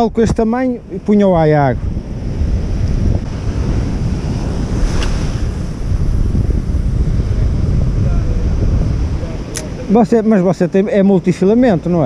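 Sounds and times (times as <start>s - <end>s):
wind buffeting microphone: 0.0s - 12.0s
surf breaking on rocks: 2.3s - 10.4s.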